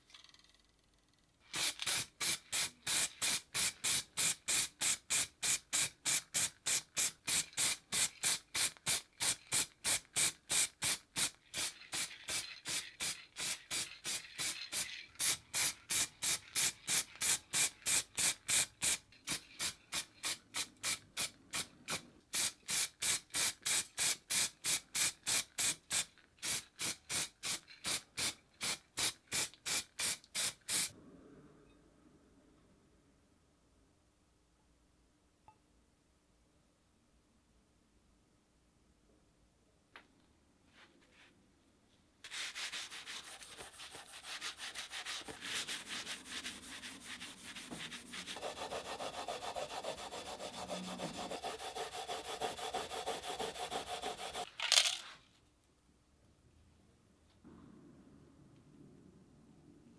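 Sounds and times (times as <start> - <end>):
spray can hissing in short bursts: 1.5 - 30.9.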